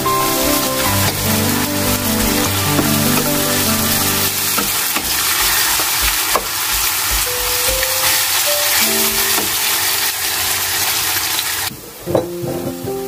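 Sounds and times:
soft background music: 0.0 - 5.3, 7.1 - 10.9, 12.1 - 13.0
onions sizzling in a pan: 0.0 - 12.0
wooden spatula knocking on pan: 4.6 - 8.2.

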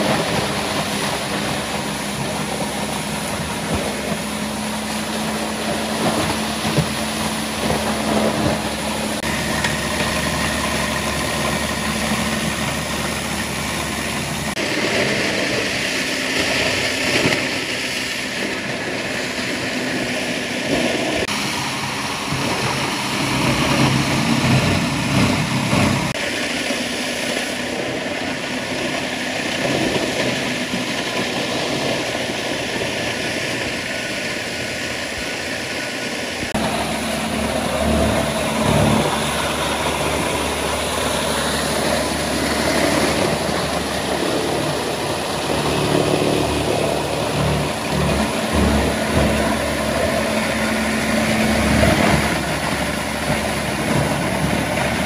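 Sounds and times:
plastic shredder grinding: 0.0 - 15.6, 36.6 - 55.0.

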